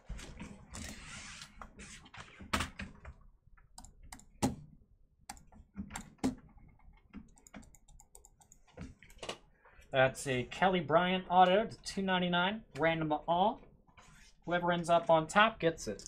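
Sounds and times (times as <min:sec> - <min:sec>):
keyboard and mouse clicks: 0:02.2 - 0:04.7, 0:05.3 - 0:09.4.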